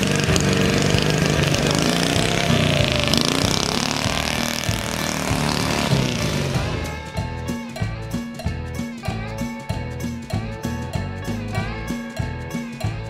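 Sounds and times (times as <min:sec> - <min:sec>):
motor engine running loudly: 0:00.0 - 0:07.2.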